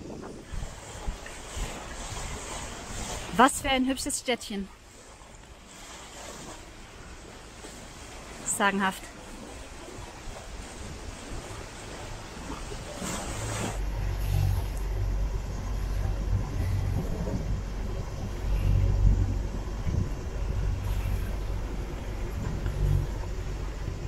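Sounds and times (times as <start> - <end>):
wind buffeting microphone: 0.0 - 4.1, 9.2 - 24.0.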